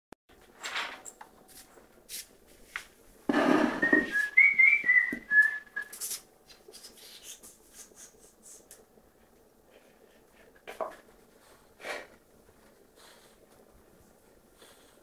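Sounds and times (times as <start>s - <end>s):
person whistling high notes: 3.8s - 6.1s.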